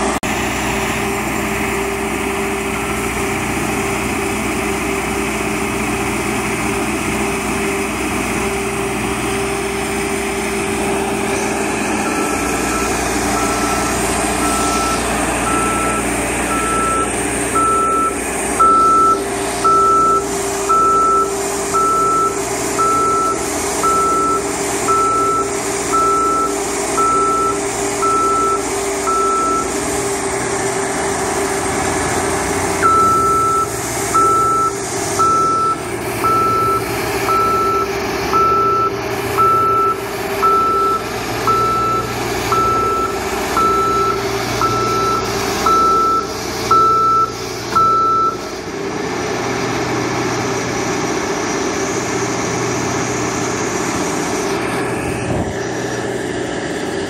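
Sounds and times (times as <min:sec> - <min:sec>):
street sweeper engine running: 0:00.0 - 0:57.0
warning beeper: 0:12.0 - 0:29.8, 0:32.8 - 0:48.4.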